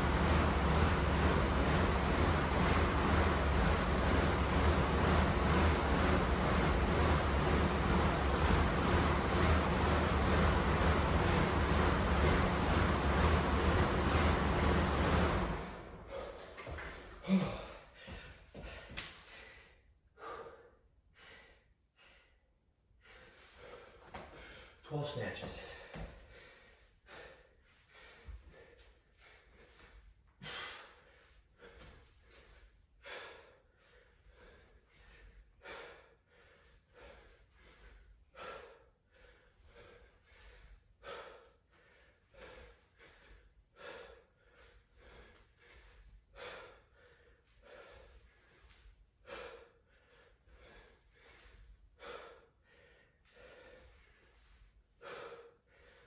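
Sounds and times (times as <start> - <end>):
man breathing hard: 15.9 - 24.8, 25.5 - 56.0.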